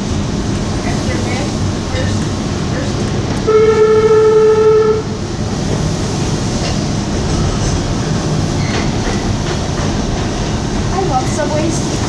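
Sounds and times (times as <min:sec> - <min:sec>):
subway train rumble: 0:00.0 - 0:12.0
train horn: 0:03.4 - 0:05.2.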